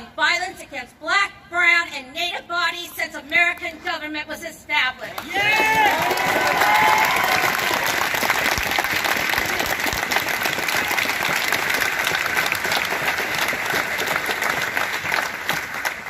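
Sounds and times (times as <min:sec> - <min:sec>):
crowd applauding: 0:05.2 - 0:16.0.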